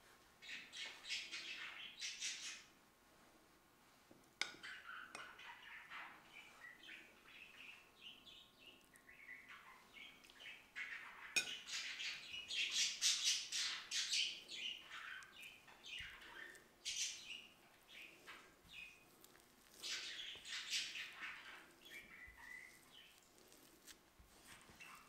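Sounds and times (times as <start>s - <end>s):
birds chirping: 4.4s - 19.2s, 19.8s - 23.7s.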